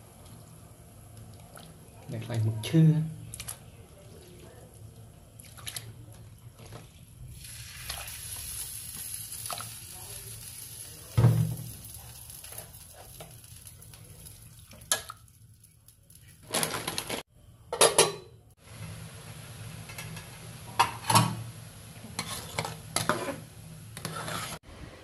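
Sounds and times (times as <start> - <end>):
pot boiling: 0.0 - 17.3, 18.6 - 25.0
metal utensil scraping a pot: 22.2 - 24.6.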